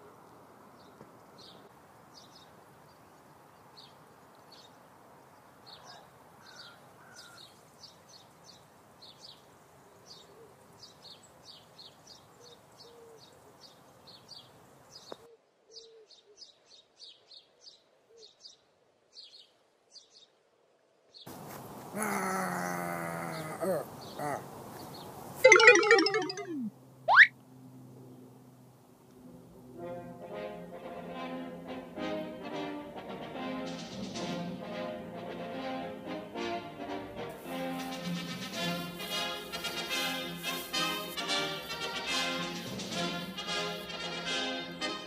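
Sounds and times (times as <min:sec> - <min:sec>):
faint outdoor hiss: 0:00.0 - 0:45.0
birds chirping: 0:22.9 - 0:27.3.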